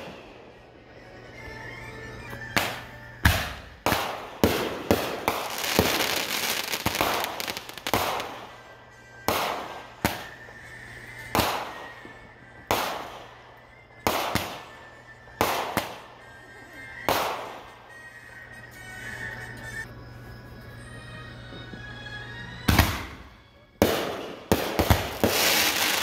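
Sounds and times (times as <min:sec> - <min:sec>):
fireworks crackle: 0:00.0 - 0:00.3, 0:02.4 - 0:18.0, 0:23.9 - 0:26.0
fireworks bangs echoing: 0:00.0 - 0:00.4, 0:02.5 - 0:10.4, 0:11.2 - 0:13.4, 0:14.0 - 0:16.2, 0:17.0 - 0:17.8, 0:23.8 - 0:26.0.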